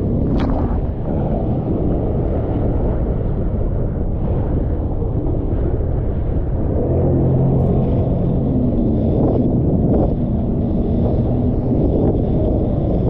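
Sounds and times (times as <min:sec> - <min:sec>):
rushing water: 0:00.0 - 0:01.8
wind buffeting microphone: 0:00.0 - 0:13.0
jet ski engine: 0:06.7 - 0:13.0.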